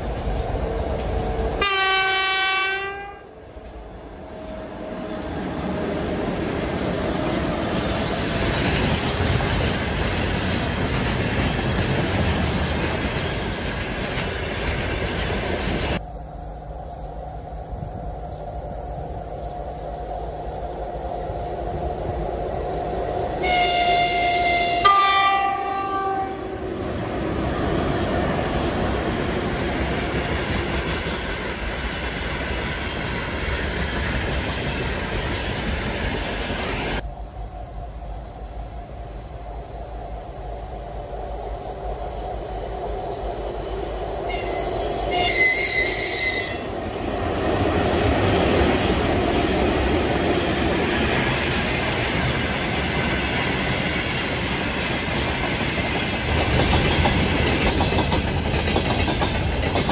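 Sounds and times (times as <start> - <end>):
locomotive horn: 1.6 - 3.4, 23.4 - 26.8, 44.3 - 46.7
short high-pitched train horn: 1.6 - 3.4, 23.4 - 26.8, 44.3 - 46.7.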